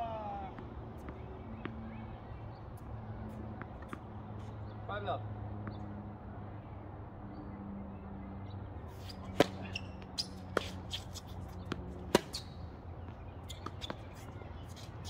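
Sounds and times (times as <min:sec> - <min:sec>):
tennis ball bouncing: 0:09.0 - 0:15.0
racket striking tennis ball: 0:09.1 - 0:12.6.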